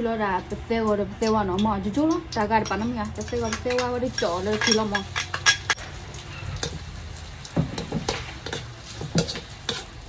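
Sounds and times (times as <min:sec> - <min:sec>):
faint frying sizzle: 0:00.0 - 0:10.0
ladle scraping and tapping wok: 0:02.1 - 0:10.0
metal spoon clinking glass bowl: 0:02.6 - 0:05.8.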